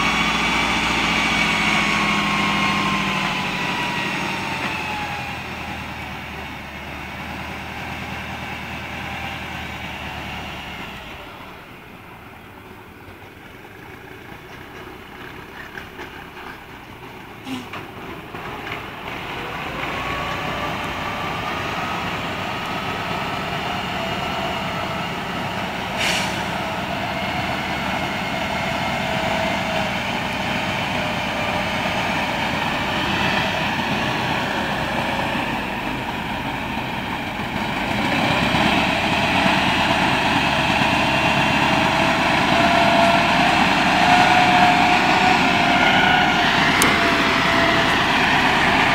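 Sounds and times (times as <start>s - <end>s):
diesel truck engine running: 0.0s - 48.9s.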